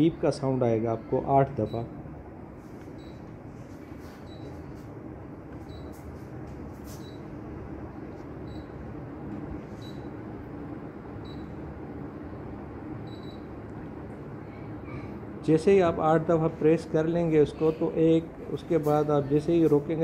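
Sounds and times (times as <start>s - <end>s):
air conditioner beeps: 0.0s - 20.0s.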